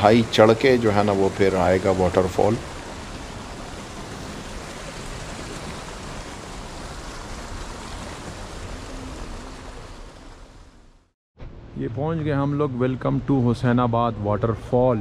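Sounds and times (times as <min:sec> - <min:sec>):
tyres on dirt road: 0:00.0 - 0:15.0
low rumble: 0:08.0 - 0:14.7.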